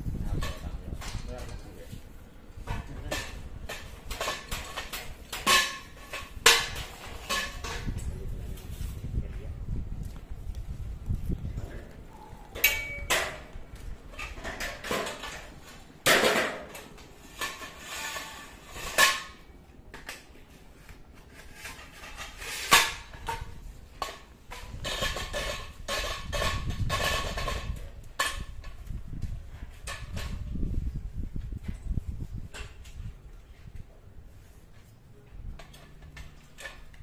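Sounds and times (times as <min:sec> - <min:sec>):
metal poles clanking: 0:02.6 - 0:08.0, 0:12.6 - 0:19.5, 0:35.5 - 0:37.0.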